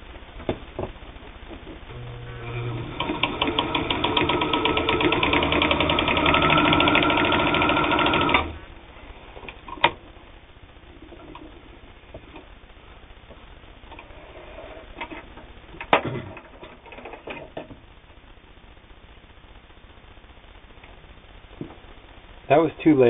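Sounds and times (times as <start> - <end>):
sewing machine stitching: 1.9 - 8.6.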